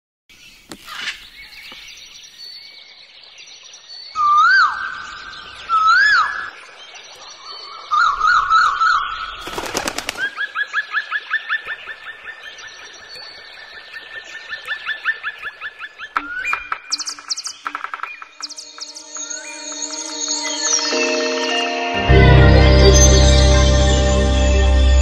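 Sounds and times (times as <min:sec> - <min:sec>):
whistled bird calls: 0:04.0 - 0:06.6, 0:14.5 - 0:20.9
fast chirps: 0:16.2 - 0:20.1.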